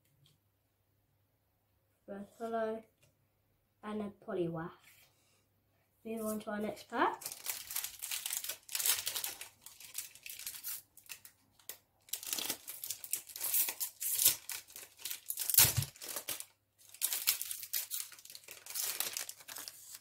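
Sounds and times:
foil wrapper crinkling and tearing: 7.1 - 20.0.

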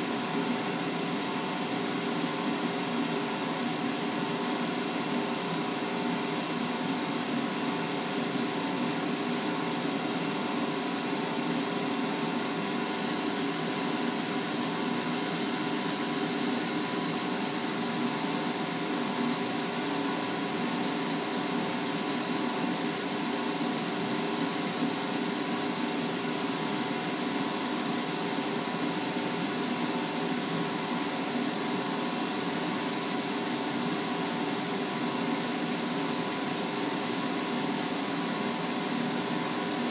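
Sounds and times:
laser cutter humming: 0.0 - 1.3.

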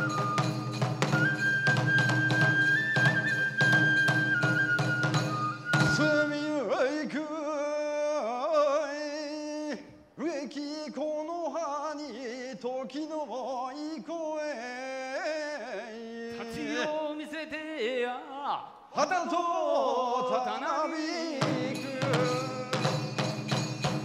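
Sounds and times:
person chanting unaccompanied: 13.1 - 23.0.

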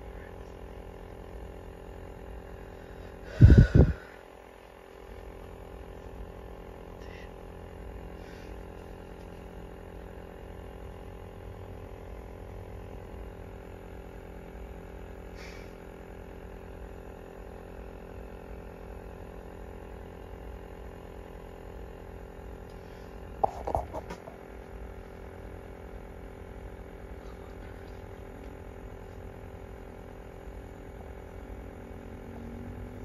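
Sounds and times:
steady tonal hum: 0.0 - 9.5, 22.8 - 25.6.

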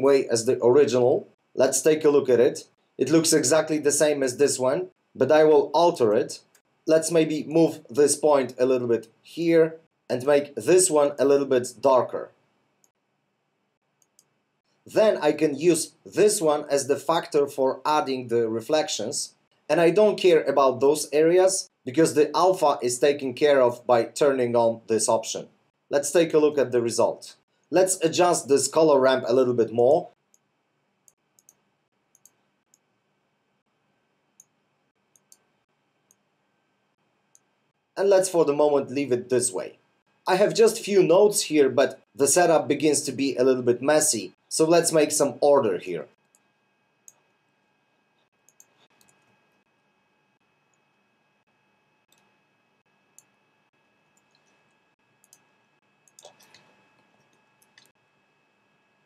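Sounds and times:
low room hiss: 0.0 - 59.0
faint computer mouse clicks: 31.4 - 32.8, 35.1 - 35.4, 48.5 - 49.3, 54.1 - 57.9.

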